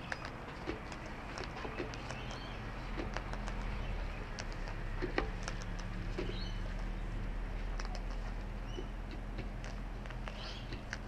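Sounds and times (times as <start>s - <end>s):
bird beak cracking seeds: 0.0s - 7.0s, 7.6s - 11.0s
beak pecking plastic and wood: 0.0s - 11.0s.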